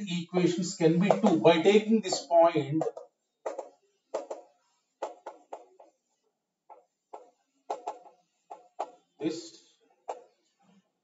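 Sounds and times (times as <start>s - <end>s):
chalk writing on blackboard: 2.1s - 9.4s.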